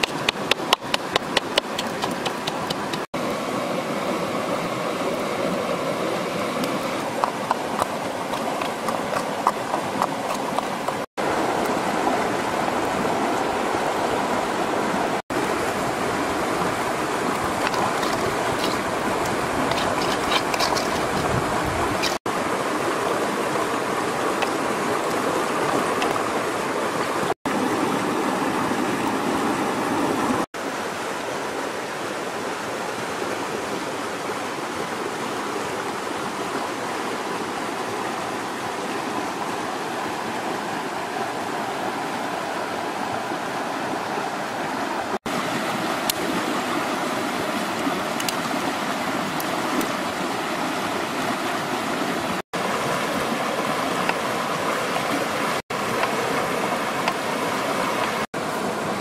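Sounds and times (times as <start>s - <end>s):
stream flowing over rocks: 0.0s - 59.0s.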